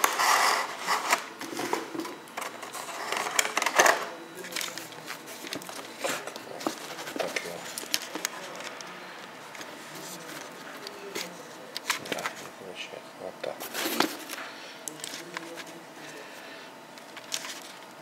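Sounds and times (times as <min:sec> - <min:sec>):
packaging rustling: 0:04.4 - 0:12.5, 0:13.6 - 0:15.8, 0:17.0 - 0:18.0.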